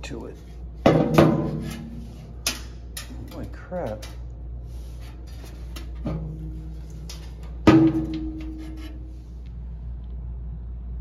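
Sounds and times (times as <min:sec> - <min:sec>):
metal ringing: 0:07.1 - 0:09.1.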